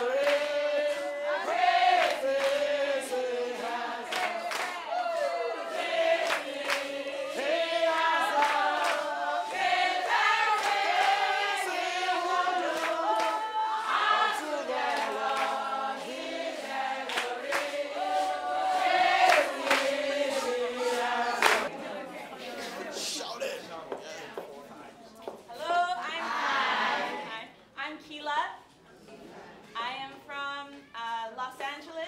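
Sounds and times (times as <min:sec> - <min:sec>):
rhythmic hand clapping: 0:00.0 - 0:21.7
women singing in chorus: 0:00.0 - 0:22.0, 0:25.6 - 0:27.4.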